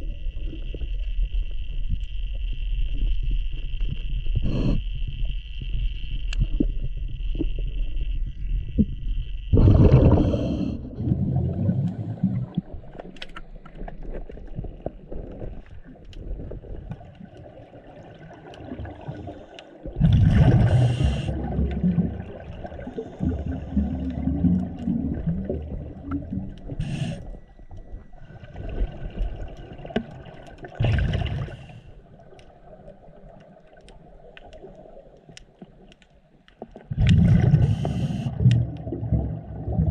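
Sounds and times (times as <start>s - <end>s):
regulator hissing inhale: 4.4s - 5.1s, 10.2s - 11.0s, 20.6s - 21.5s, 26.7s - 27.4s, 37.6s - 38.4s
exhaled bubbles bursting: 9.5s - 13.1s, 16.2s - 27.0s, 28.0s - 31.7s, 36.8s - 39.9s.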